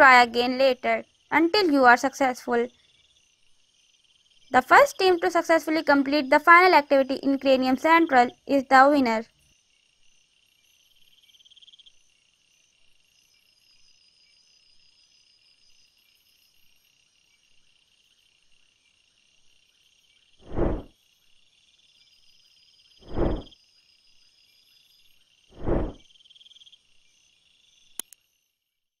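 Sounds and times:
high cricket-like chirring: 0.0 - 28.6
deep whoosh sound effects: 20.4 - 20.9, 23.0 - 23.5, 25.5 - 26.0.

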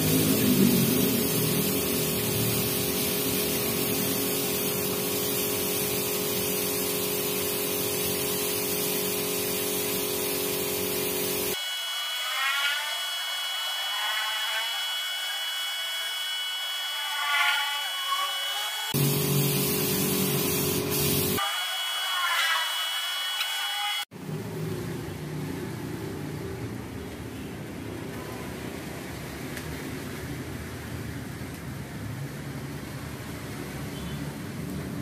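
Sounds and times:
spray gun hissing: 0.0 - 11.6, 18.5 - 21.4
steady hum: 0.0 - 11.8, 18.9 - 21.4.

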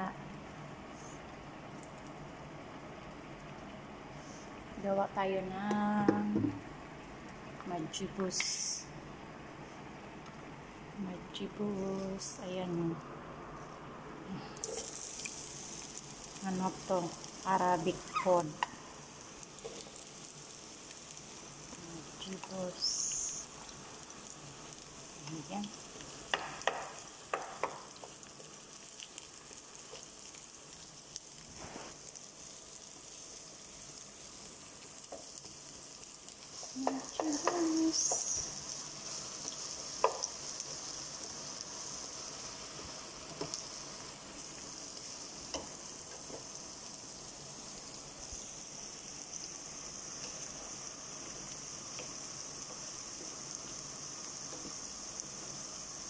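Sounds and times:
onions sizzling in hot oil: 0.0 - 56.0
wooden spatula knocking on pan: 26.3 - 27.9.

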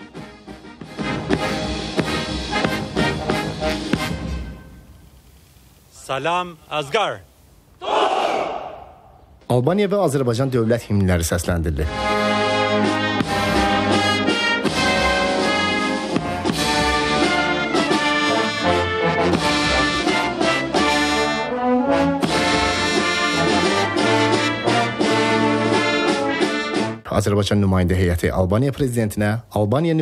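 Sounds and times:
brass band playing anthem: 0.0 - 4.7, 11.9 - 27.0.

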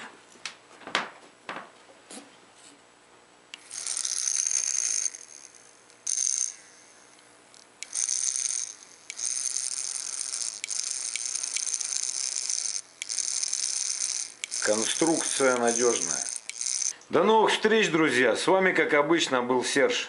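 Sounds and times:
tattoo machine buzzing: 3.6 - 17.0.

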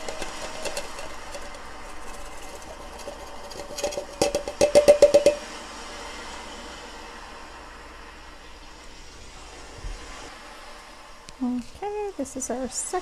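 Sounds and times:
metallic taps on steel column: 0.0 - 5.5.

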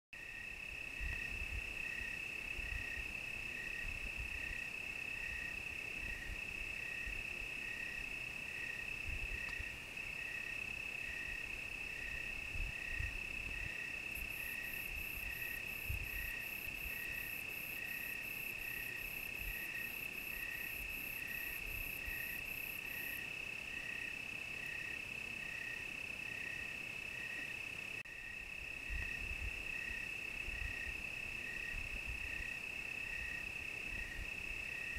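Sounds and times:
cricket regular chirp: 0.2 - 34.9
cricket steady high trill: 0.2 - 34.9.

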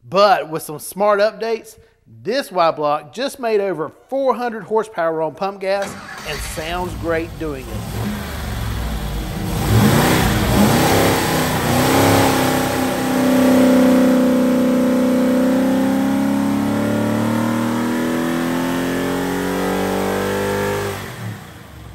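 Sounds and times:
engine running at high revs: 5.8 - 21.9.

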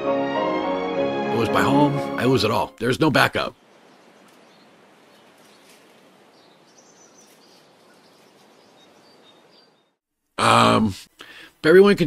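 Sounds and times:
steady outdoor hiss: 1.6 - 12.0
faint bird chirps: 3.6 - 10.0.

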